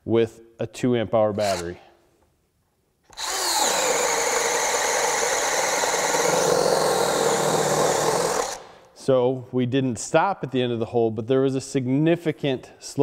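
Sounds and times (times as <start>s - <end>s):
drill boring into wood: 1.4s - 1.7s, 3.1s - 8.7s.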